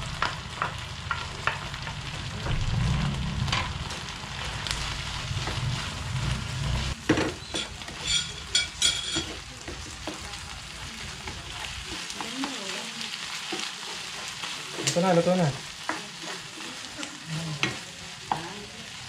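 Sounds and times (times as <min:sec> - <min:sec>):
meat and onions sizzling in pan: 0:00.0 - 0:19.0
spatula scraping pan: 0:04.8 - 0:10.2, 0:11.2 - 0:18.6.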